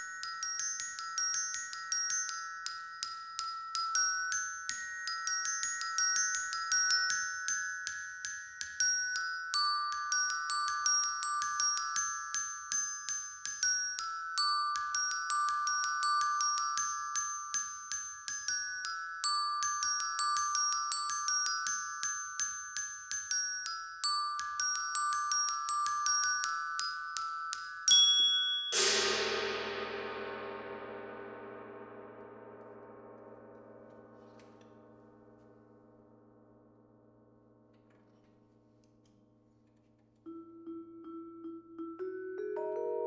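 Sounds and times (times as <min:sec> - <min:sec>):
glockenspiel: 0:00.0 - 0:29.9, 0:40.2 - 0:43.0
gong struck and ringing: 0:28.8 - 0:34.2.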